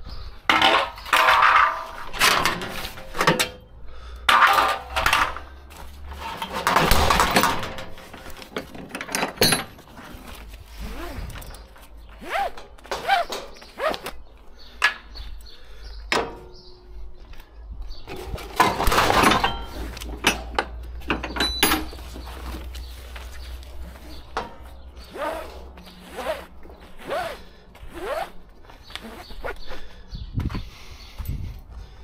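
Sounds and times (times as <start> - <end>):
webbing zipping through buckle: 9.8 - 14.2, 24.9 - 29.7.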